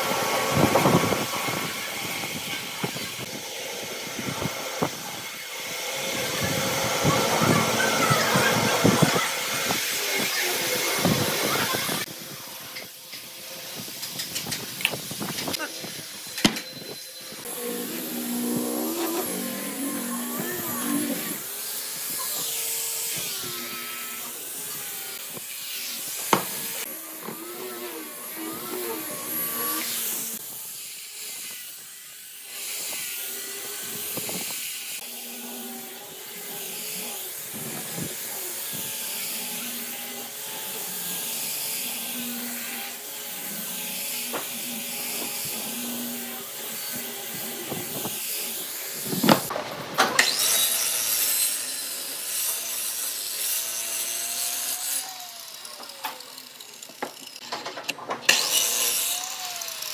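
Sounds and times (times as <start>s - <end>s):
angle grinder sanding wood: 0.0s - 49.5s, 50.2s - 57.6s, 58.3s - 59.9s.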